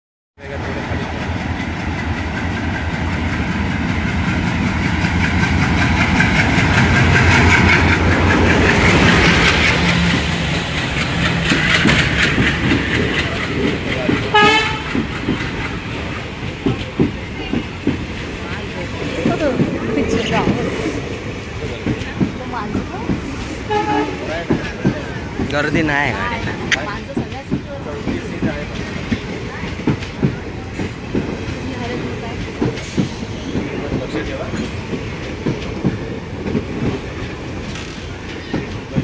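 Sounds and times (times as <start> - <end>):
diesel locomotive passing: 0.4 - 39.0
train wheels knocking on rail joints: 0.7 - 39.0
train horn toot: 14.3 - 15.0, 23.6 - 24.4.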